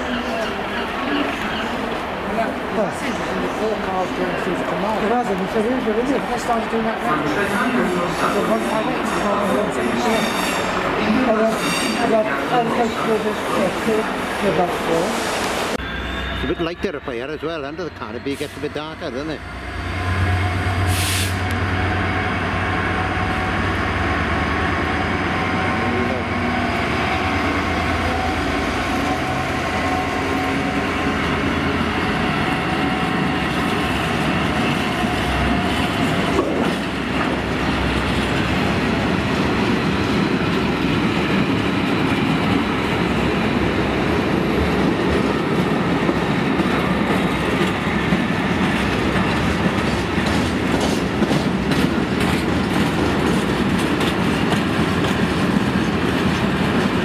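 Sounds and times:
train wagons rumbling: 0:00.0 - 0:57.0
wheel clickety-clack: 0:46.0 - 0:57.0.

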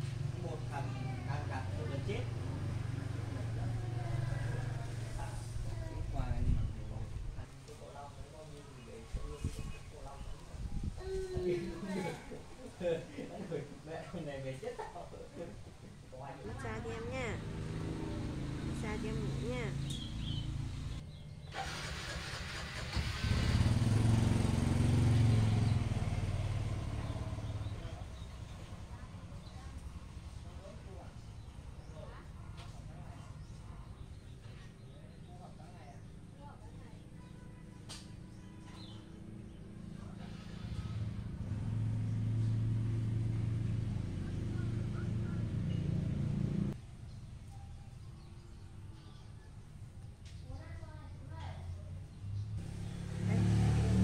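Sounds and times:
engine running: 0:16.6 - 0:21.0, 0:40.2 - 0:46.8, 0:52.4 - 0:54.0.

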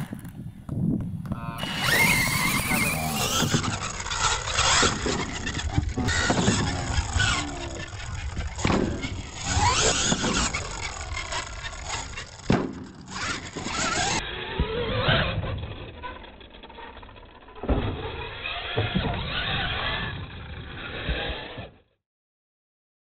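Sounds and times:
tyres scrabbling on dirt: 0:00.0 - 0:21.6
toy truck motor whining: 0:01.3 - 0:22.0
thumps of jumps landing: 0:04.6 - 0:07.3, 0:08.4 - 0:10.6, 0:12.4 - 0:14.8.

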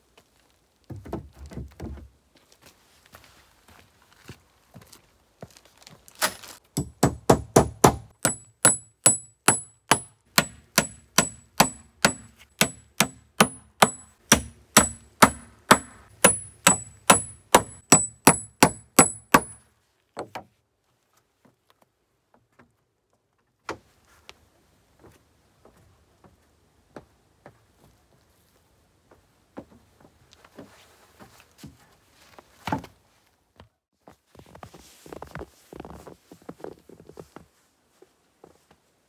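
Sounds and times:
hammer striking nails: 0:06.8 - 0:19.6.

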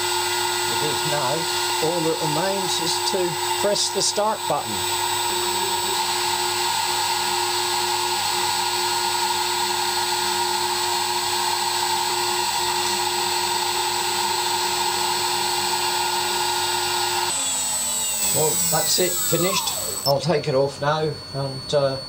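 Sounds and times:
milling spindle whine: 0:00.0 - 0:08.8, 0:12.6 - 0:20.4
vacuum pump hiss: 0:00.7 - 0:06.1, 0:17.3 - 0:20.2.

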